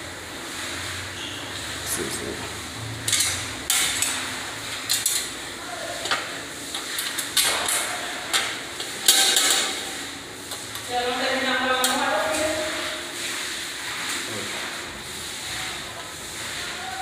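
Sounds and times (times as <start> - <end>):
metal cover clattering: 7.1 - 9.9.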